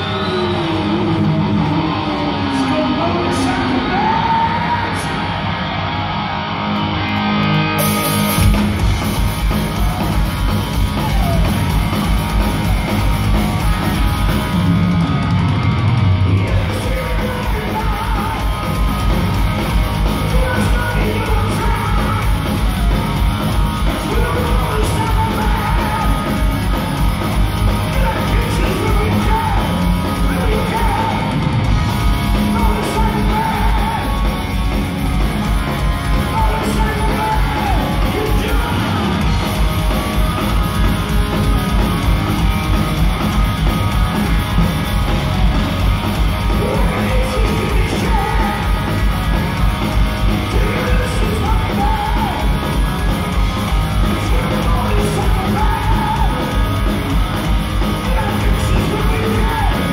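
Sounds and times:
distorted guitars: 0:00.0 - 0:59.9
heavy metal band playing live: 0:00.0 - 0:59.9
fast pounding drum beat: 0:08.3 - 0:59.9
yelled vocals: 0:16.1 - 0:59.9.

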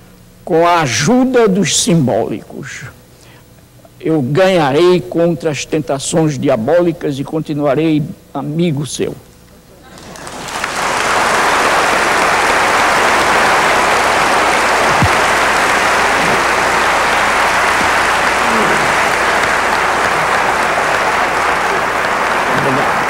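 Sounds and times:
audience applauding: 0:09.9 - 0:23.0.

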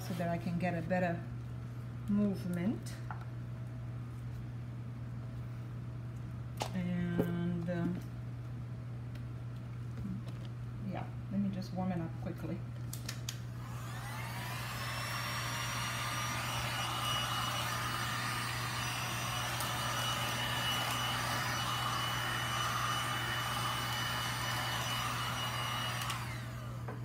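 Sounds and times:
hot-air blower whining: 0:13.2 - 0:27.0.

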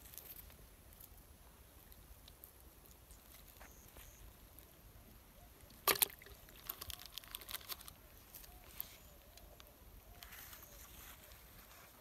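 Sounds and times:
fish splashing into bucket: 0:05.7 - 0:07.6
light clicks and rustles: 0:05.9 - 0:12.0.

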